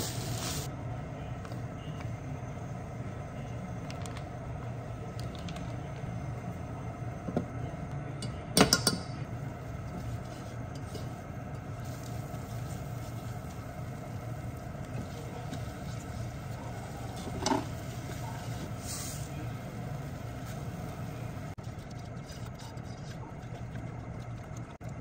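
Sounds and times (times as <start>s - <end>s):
kitchen appliance hum: 0.0s - 25.0s.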